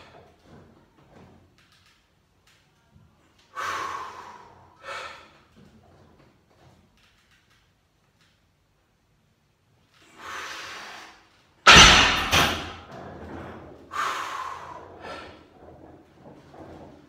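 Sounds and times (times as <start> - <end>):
loud forceful exhale: 3.6 - 5.3.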